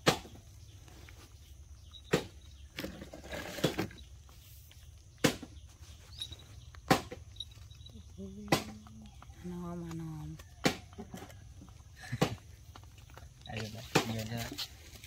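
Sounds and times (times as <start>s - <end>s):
faint outdoor background: 0.0s - 15.0s
rustling scuffle: 13.2s - 15.0s.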